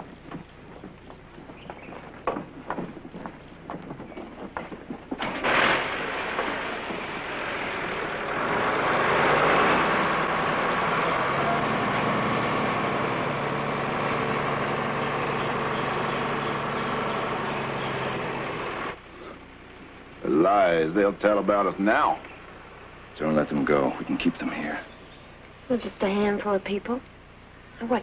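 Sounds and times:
truck engine running: 0.0s - 28.0s.

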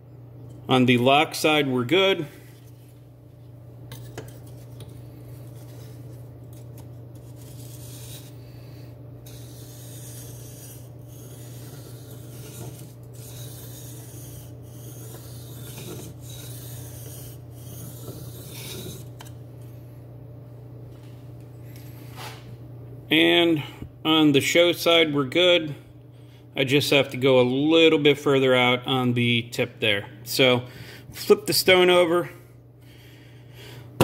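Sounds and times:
knife scraping on whetstone: 5.5s - 8.5s, 9.2s - 19.3s.

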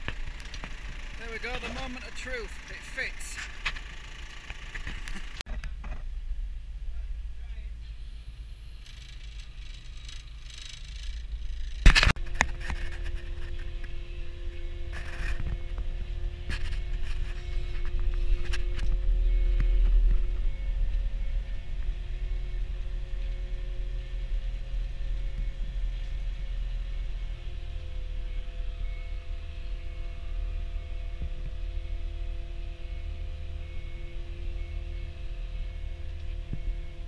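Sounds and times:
scattered rattles: 0.0s - 5.4s, 8.6s - 13.6s
steady whine: 0.0s - 37.0s
telehandler engine rumbling: 0.0s - 37.0s.

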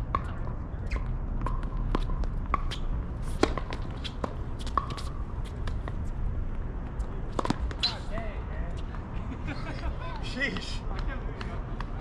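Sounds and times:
shoes squeaking on hard court: 0.2s - 5.9s, 7.0s - 8.9s.

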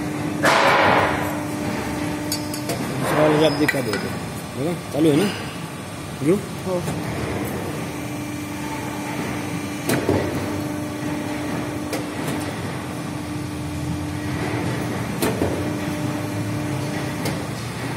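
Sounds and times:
machine humming: 0.0s - 17.9s
sharp metallic knocks: 0.4s - 1.2s.

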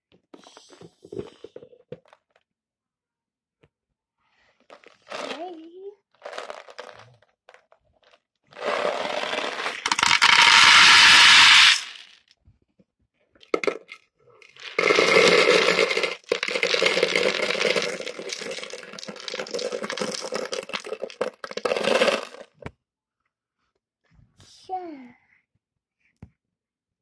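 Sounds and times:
plastic beads rattling: 6.2s - 12.3s, 13.4s - 22.6s.

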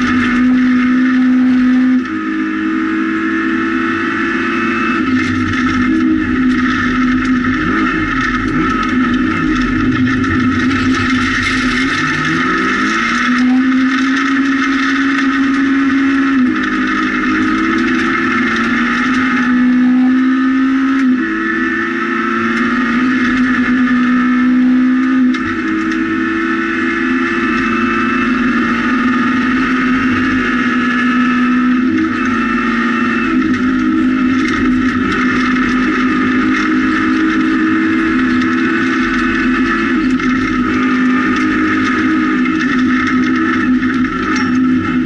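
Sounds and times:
car engine accelerating: 0.0s - 45.0s
tyres rushing on gravel: 5.1s - 19.5s.

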